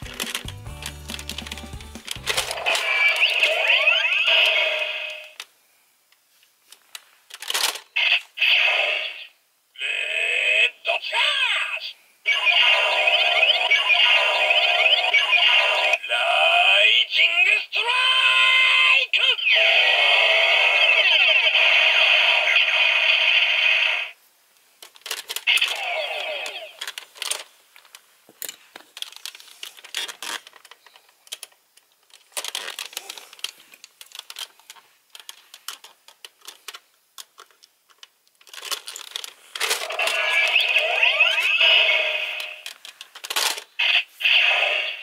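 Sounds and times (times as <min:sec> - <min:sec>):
tinny electronic toy gun effects: 0:00.1 - 0:05.4, 0:12.3 - 0:16.1, 0:39.8 - 0:42.7, 0:43.8 - 0:45.0
plastic clicks: 0:26.8 - 0:39.9.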